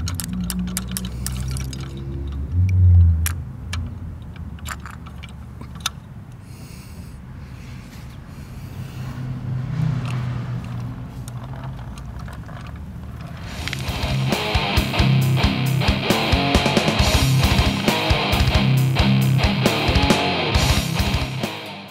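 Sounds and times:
clicks and clatter: 0.0s - 6.1s, 9.9s - 13.9s.

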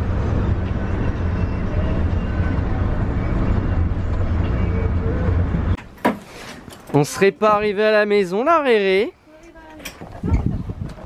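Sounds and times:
vehicle engine and road rumble: 0.0s - 7.0s.

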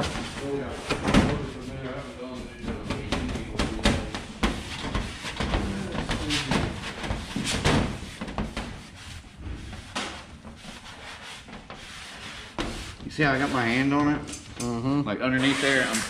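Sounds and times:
squeegee scraping vinyl wrap: 0.0s - 16.0s
backing sheet peeling: 15.3s - 16.0s.

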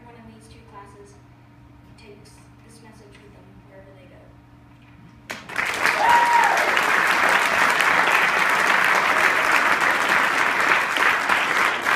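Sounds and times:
audience applauding: 5.3s - 11.9s.

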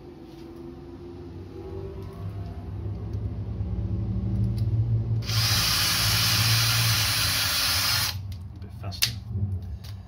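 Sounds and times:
cordless drill motor hum: 5.2s - 8.2s.

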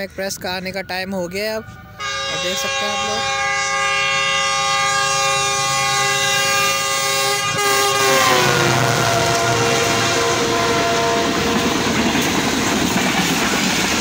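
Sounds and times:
locomotive horn blast: 1.9s - 12.0s
train wheels rushing: 2.0s - 14.0s.

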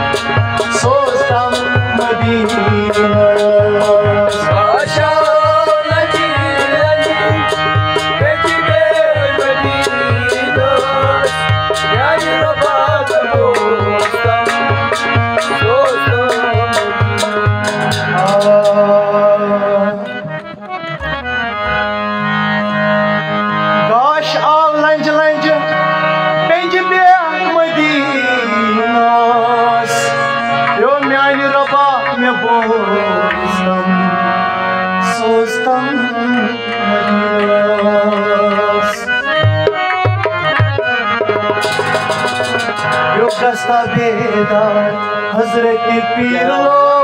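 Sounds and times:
tabla strokes: 0.0s - 18.9s, 39.0s - 43.7s
hand drum: 0.0s - 19.1s, 39.3s - 44.4s
man singing: 0.0s - 20.5s, 23.8s - 39.3s, 43.0s - 47.0s
harmonium melody: 0.0s - 47.0s
sustained instrumental notes: 0.0s - 47.0s.

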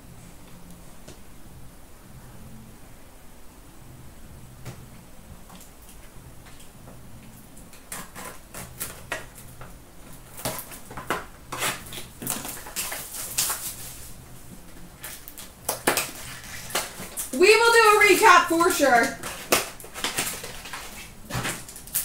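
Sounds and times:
wrapping crinkling and tearing: 10.2s - 22.0s.

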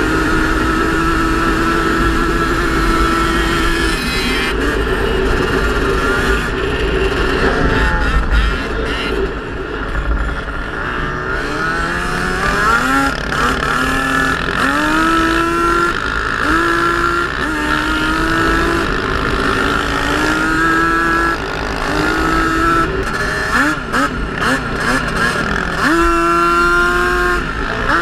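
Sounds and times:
atv engine revving: 0.0s - 28.0s.

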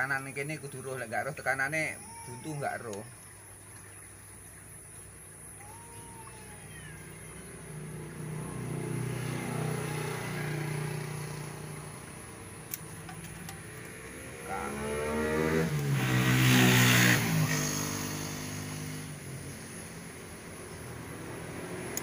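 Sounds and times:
vehicle engine passing by: 6.8s - 22.0s
steady engine note: 14.2s - 16.0s.

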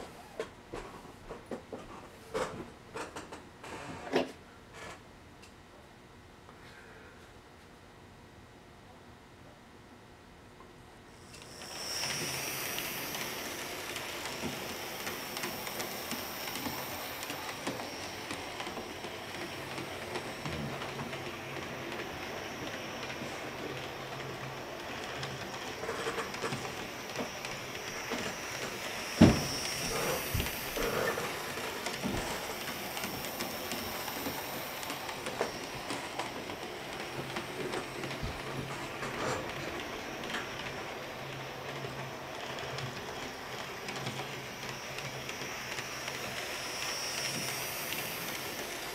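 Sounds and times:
model train wheels rattling on rails: 11.3s - 48.9s
small motor whirring: 11.3s - 48.9s.

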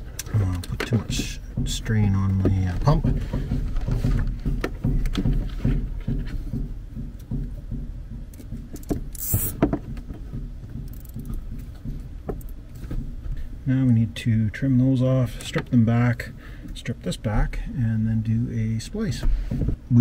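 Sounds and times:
cable tie zip: 9.2s - 9.6s.

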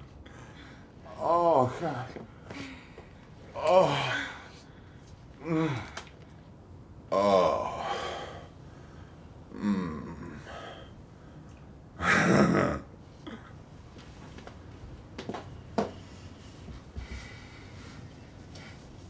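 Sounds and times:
person sighing: 3.6s - 4.6s, 5.4s - 6.1s, 9.5s - 10.8s.

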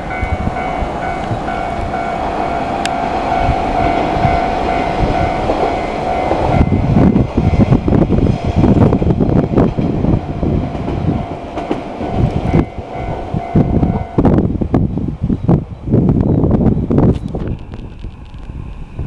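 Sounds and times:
railroad crossing alarm ringing: 0.0s - 8.1s, 10.2s - 14.4s
train wheels clattering on rail: 0.0s - 14.4s.

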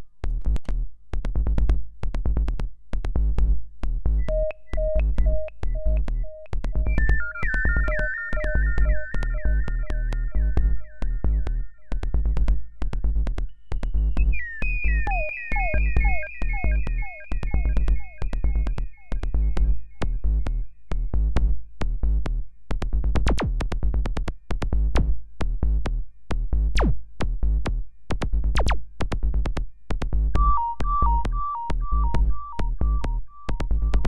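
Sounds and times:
deep bass pulse: 30.2s - 34.0s
falling pitched blips: 30.4s - 34.0s
high two-note melody: 30.4s - 34.0s.

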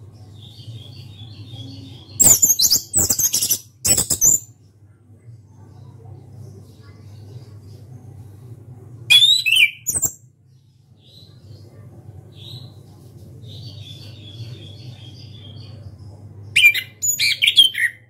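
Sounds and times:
bird singing: 0.1s - 4.5s, 9.1s - 10.2s, 13.5s - 18.0s
steady low hum: 4.5s - 9.1s, 10.3s - 17.0s.

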